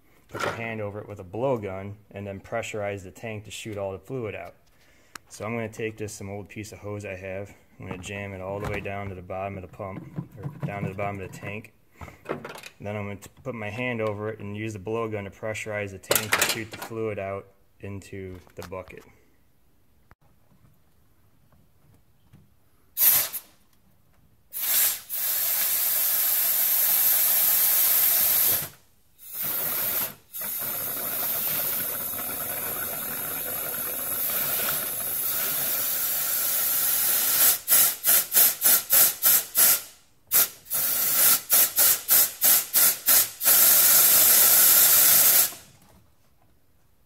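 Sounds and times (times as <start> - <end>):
compressed-air blowgun hissing: 24.5 - 32.1, 34.0 - 45.6.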